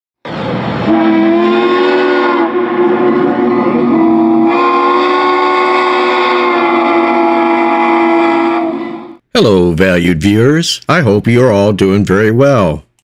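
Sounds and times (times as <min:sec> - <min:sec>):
steam whistle blowing: 0:00.8 - 0:09.2.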